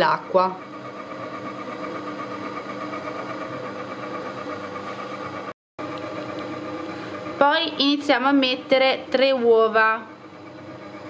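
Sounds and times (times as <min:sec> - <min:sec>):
stand mixer motor humming: 0:00.0 - 0:09.3, 0:10.0 - 0:11.0.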